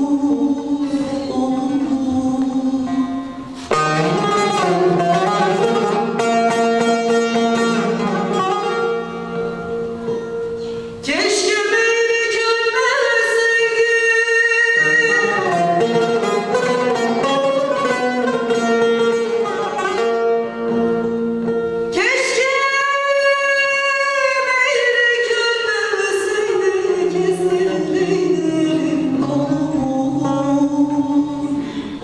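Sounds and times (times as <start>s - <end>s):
woman singing a lament: 0.0s - 6.0s, 11.0s - 17.7s, 21.9s - 32.0s
plucked lute accompaniment: 0.0s - 32.0s.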